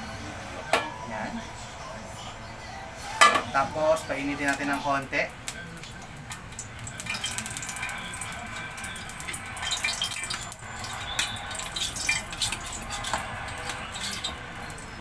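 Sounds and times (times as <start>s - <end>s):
oil crackling and popping: 4.4s - 15.0s
oil sizzling in a frying pan: 4.4s - 15.0s.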